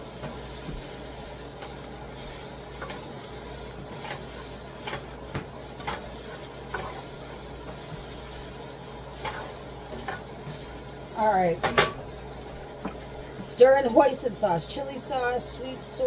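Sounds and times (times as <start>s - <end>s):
spatula scraping a pan: 0.0s - 12.0s
food sizzling: 0.0s - 16.0s.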